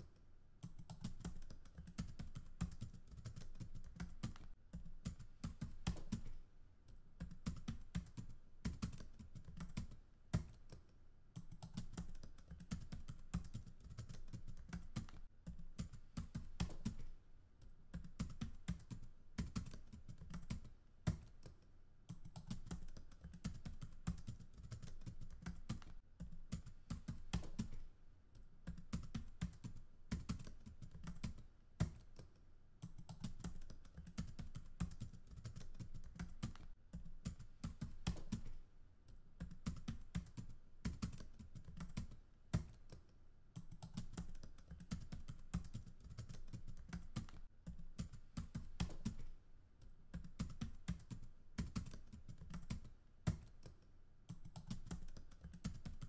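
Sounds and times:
computer keyboard typing: 0.0s - 17.2s, 17.9s - 27.9s, 28.6s - 38.6s, 39.4s - 56.0s.

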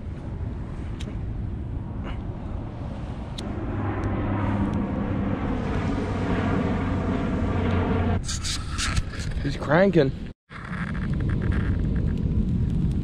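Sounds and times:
distant engine droning: 0.0s - 9.3s.

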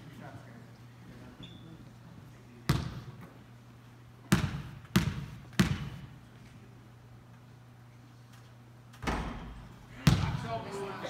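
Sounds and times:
basketball bouncing on hardwood floor: 2.7s - 3.1s, 4.3s - 6.1s, 10.0s - 10.5s.

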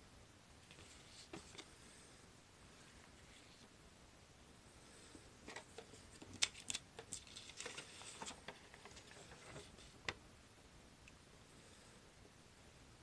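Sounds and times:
paper rustling and crackling: 5.5s - 10.2s.

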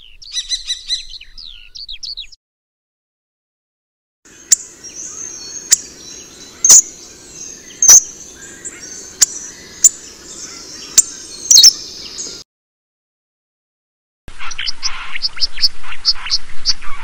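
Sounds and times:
background bird twittering: 0.0s - 2.4s, 4.3s - 12.4s
bird sharp click calls: 6.6s - 6.9s, 7.8s - 12.4s.

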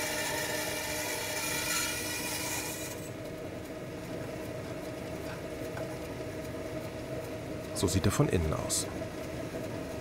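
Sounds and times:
band saw cutting snowball: 0.0s - 3.1s
band saw humming: 0.0s - 10.0s.

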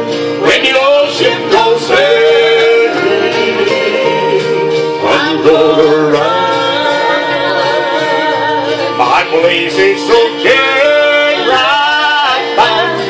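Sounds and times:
country gospel music: 0.0s - 13.0s.

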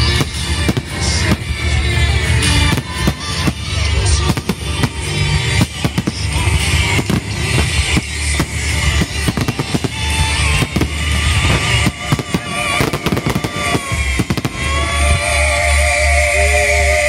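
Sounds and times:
fireworks bursting: 0.0s - 15.8s
music with heavy bass: 0.0s - 17.0s.

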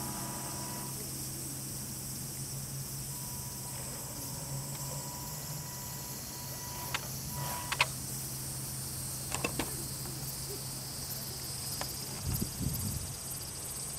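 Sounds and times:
high-pitched insect chirring: 0.0s - 13.9s
sharp clicks: 6.8s - 8.0s.

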